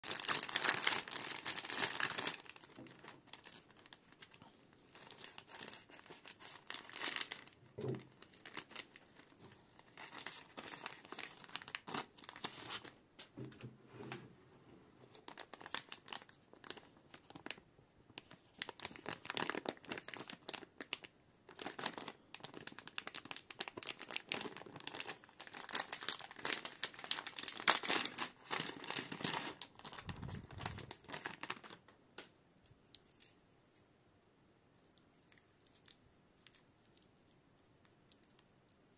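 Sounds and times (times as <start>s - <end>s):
plastic packaging crinkling and tearing: 0.0s - 13.0s, 15.0s - 17.6s, 18.2s - 31.9s.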